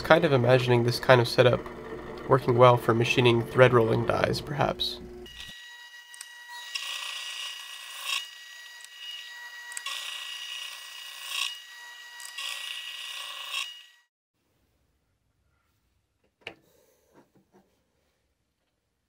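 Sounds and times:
milling cutter cutting metal: 0.0s - 14.1s.

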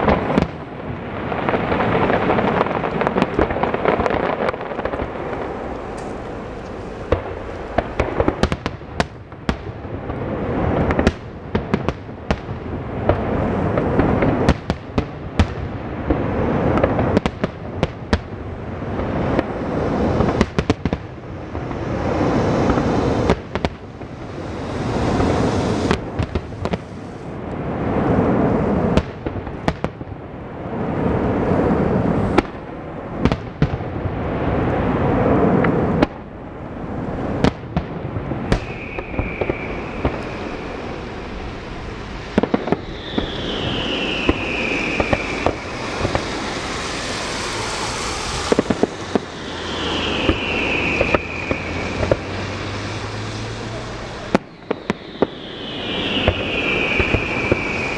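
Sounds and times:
fireworks rumble and crackle: 0.0s - 57.9s
firework shells bursting: 38.5s - 57.9s.

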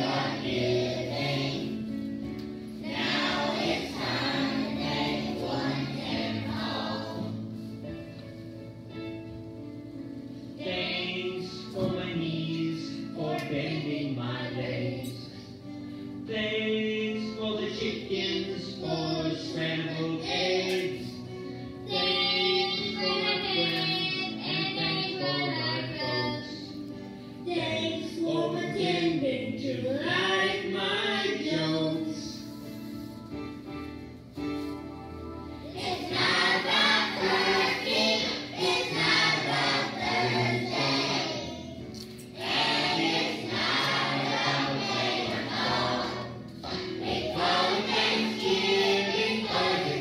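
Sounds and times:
children's choir singing: 0.0s - 2.0s, 2.8s - 7.6s, 10.6s - 15.4s, 16.3s - 21.2s, 21.9s - 26.7s, 35.6s - 50.0s.

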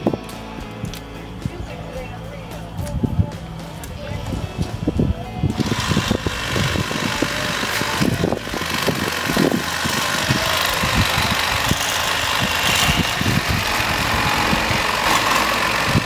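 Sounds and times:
electric knife motor buzzing: 5.5s - 16.0s.

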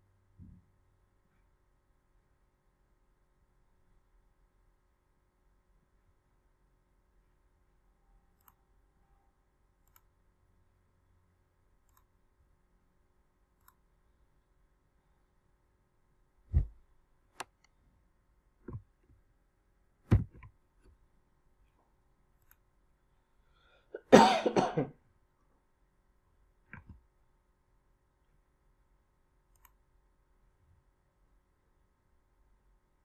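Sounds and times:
click: 8.3s - 8.7s, 9.8s - 10.2s, 11.8s - 12.1s, 13.6s - 13.8s, 17.4s - 17.8s, 22.4s - 22.7s, 29.5s - 29.8s
soft thumps: 16.5s - 16.8s, 20.1s - 20.5s
person coughing: 24.0s - 25.0s.

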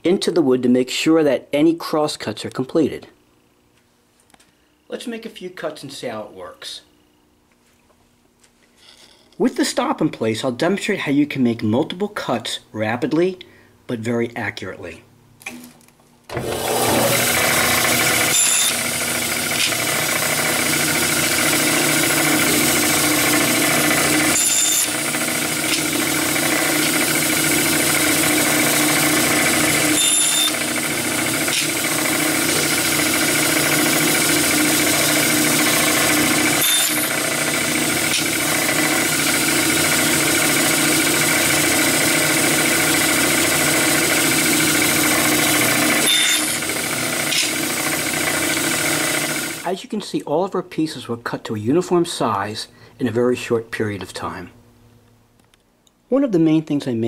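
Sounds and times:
band saw cutting wood: 16.3s - 49.6s.

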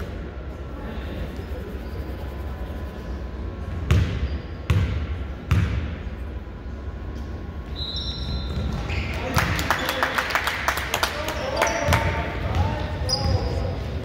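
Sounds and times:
steady low hum: 0.0s - 14.0s
basketball bouncing on gym floor: 3.7s - 6.0s, 8.2s - 9.0s, 11.7s - 14.0s.

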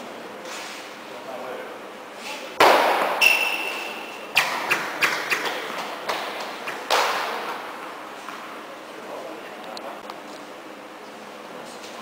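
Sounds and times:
echoing ball hit: 2.6s - 7.9s
tennis balls bouncing: 4.4s - 8.5s.

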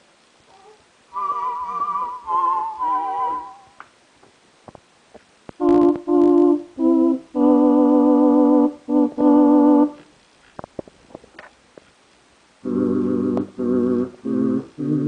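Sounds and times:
synthesizer held notes with vibrato: 1.1s - 3.8s, 5.6s - 10.0s, 12.6s - 15.0s.

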